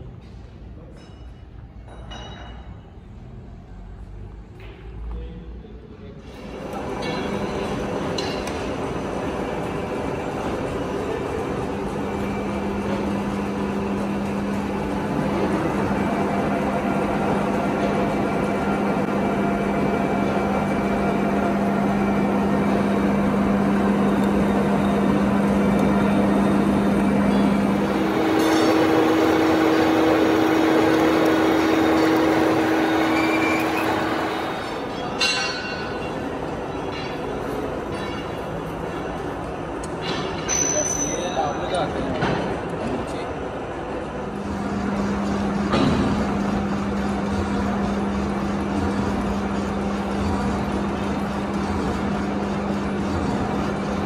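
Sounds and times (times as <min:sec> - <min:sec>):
lathe machine drone: 0:06.4 - 0:38.4, 0:43.3 - 0:54.0
steady hum: 0:06.5 - 0:40.1
sharp metallic clink: 0:40.1 - 0:41.5.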